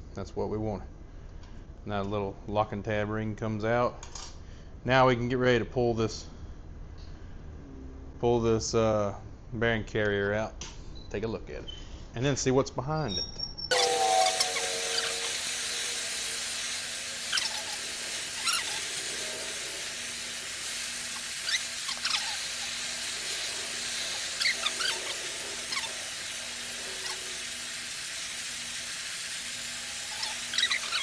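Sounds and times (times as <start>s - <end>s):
high metal squeaks: 13.6s - 19.8s, 21.2s - 26.2s, 29.8s - 31.0s.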